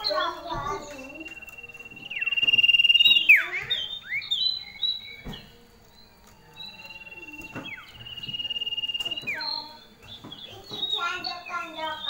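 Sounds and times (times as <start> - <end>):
bird calling with fast trill: 0.0 - 12.0.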